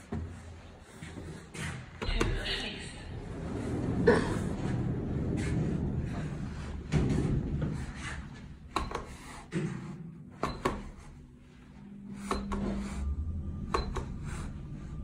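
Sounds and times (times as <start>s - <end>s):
steady hum: 0.0s - 15.0s
low elevator rumble: 0.3s - 10.3s, 10.9s - 15.0s
elevator clicks and knocks: 8.6s - 9.3s, 10.4s - 11.0s.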